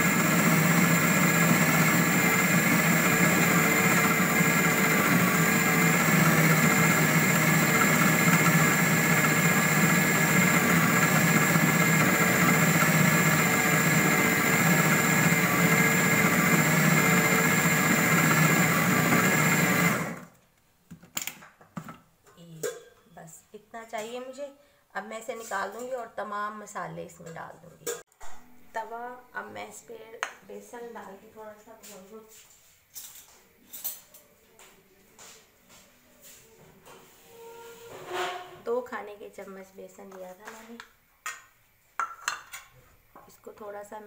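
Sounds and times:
food processor motor running: 0:00.0 - 0:20.3.

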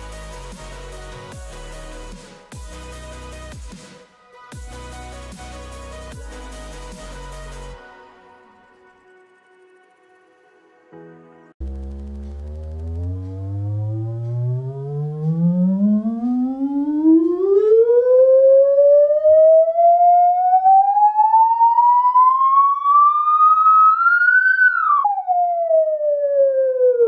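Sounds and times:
sine wave test sweep: 0:11.6 - 0:27.0.

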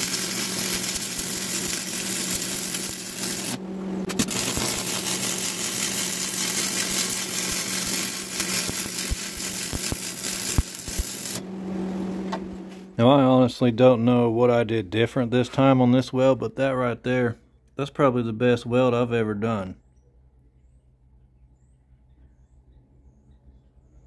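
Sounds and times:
welding arc sizzling and popping: 0:00.0 - 0:11.4
welder low hum: 0:00.0 - 0:14.5.

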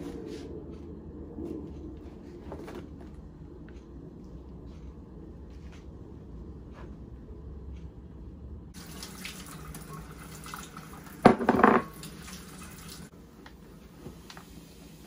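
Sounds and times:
kitchen tap water running: 0:08.7 - 0:13.1.

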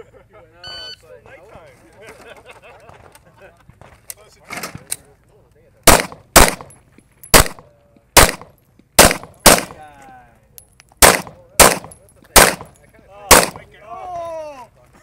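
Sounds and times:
pistol shots: 0:05.8 - 0:06.7, 0:07.3 - 0:07.6, 0:08.2 - 0:09.8, 0:11.0 - 0:12.7, 0:13.3 - 0:13.6.

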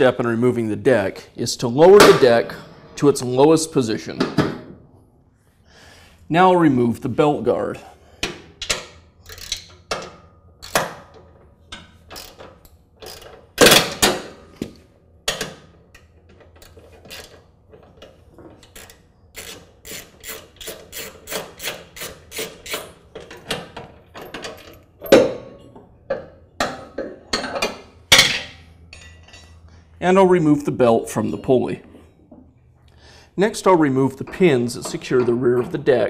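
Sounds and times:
ratchet wrench clicking: 0:08.7 - 0:10.0, 0:12.1 - 0:13.4, 0:16.6 - 0:17.4, 0:18.6 - 0:23.0.

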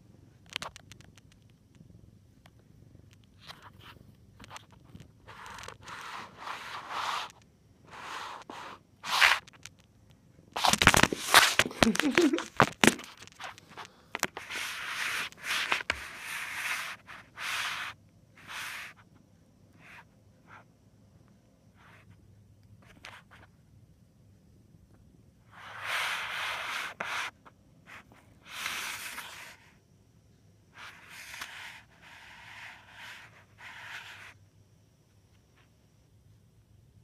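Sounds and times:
scratchy rubbing on microphone: 0:03.4 - 0:09.6.

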